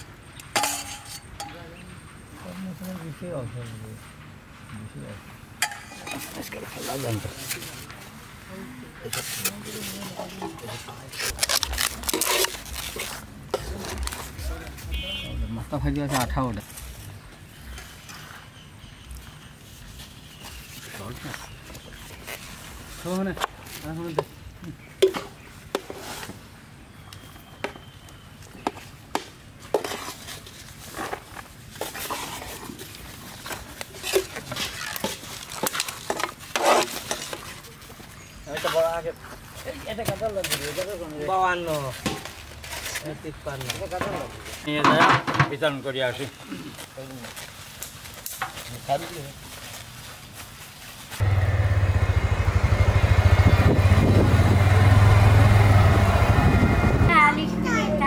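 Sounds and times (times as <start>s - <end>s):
foam boxes rustling and creaking: 6.1s - 51.5s
motorcycle engine droning: 51.2s - 57.1s.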